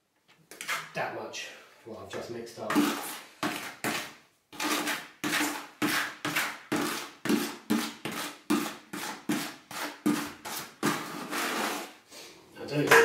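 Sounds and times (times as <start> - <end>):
scraping inside plastic bucket: 2.6 - 12.0.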